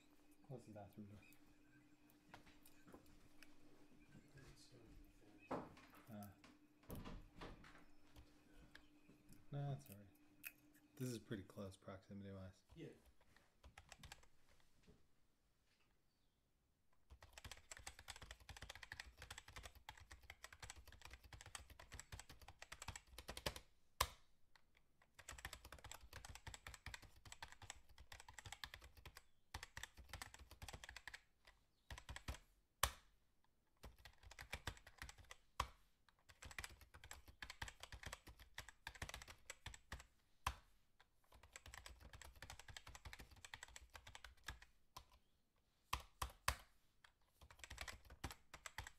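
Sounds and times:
computer keyboard typing: 13.6 - 14.3, 17.1 - 24.2, 25.0 - 33.0, 33.8 - 40.7, 41.3 - 45.2, 45.9 - 48.9.

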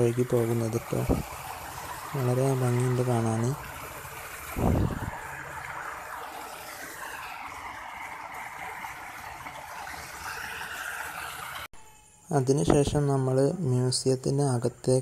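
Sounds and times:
water rushing over rocks: 0.0 - 11.7.

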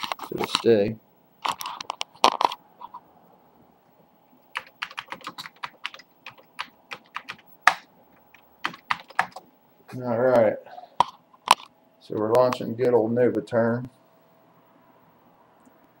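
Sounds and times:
keyboard typing clicks: 4.5 - 9.4.

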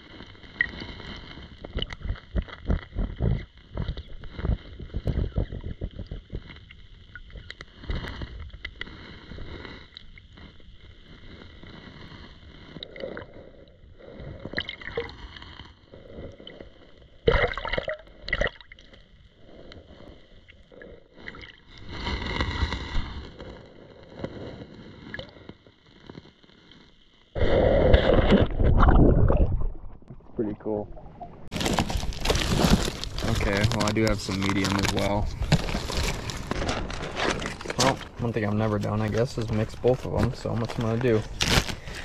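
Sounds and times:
muffled underwater water sloshing: 27.9 - 38.2.

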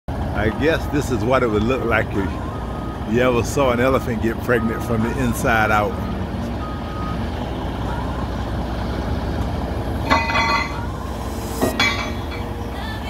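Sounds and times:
diesel engine running: 0.1 - 13.0.

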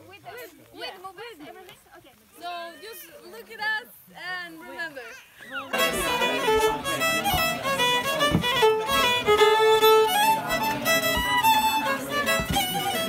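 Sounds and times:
violin tune: 5.7 - 13.0.

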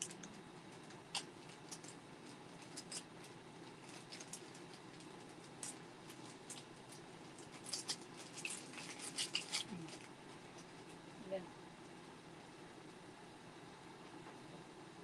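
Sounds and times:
clicks and rustles of handling: 0.0 - 11.0
room hum: 0.0 - 15.0.

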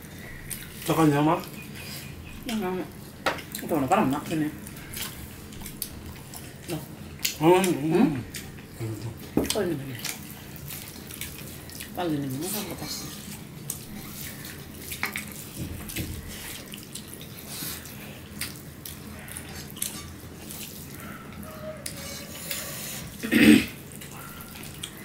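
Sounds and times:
people chewing and smacking: 0.0 - 25.0.

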